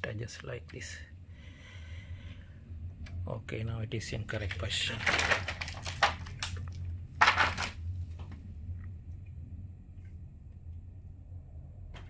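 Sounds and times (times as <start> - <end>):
low steady hum: 0.0 - 12.0
plastic sheet crinkling: 4.4 - 7.8.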